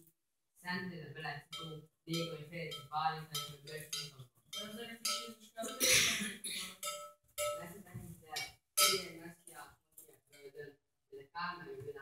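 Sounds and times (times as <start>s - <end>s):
metallic clinking and knocks: 1.5s - 5.4s, 6.7s - 7.7s, 8.3s - 9.2s.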